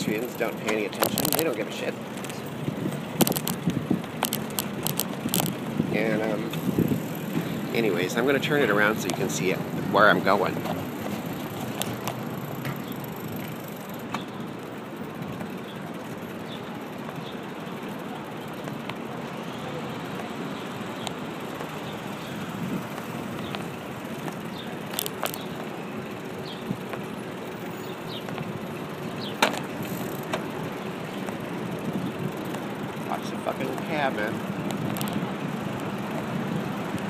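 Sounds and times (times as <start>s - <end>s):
city traffic and riding noise: 0.0s - 37.0s
sharp clicks: 3.2s - 5.7s, 22.9s - 25.6s.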